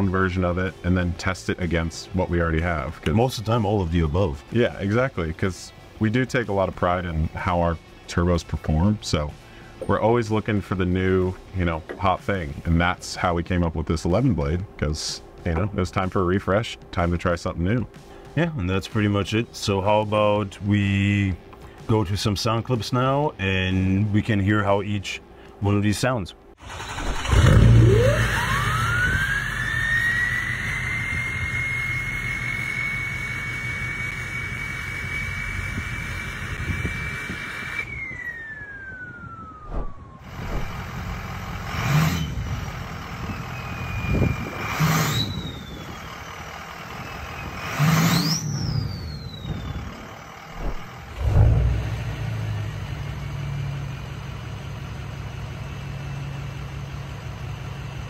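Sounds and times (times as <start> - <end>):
truck idling: 26.6 - 44.6, 45.3 - 58.0
turbo whistle: 27.8 - 40.8, 43.3 - 46.1, 47.0 - 51.4.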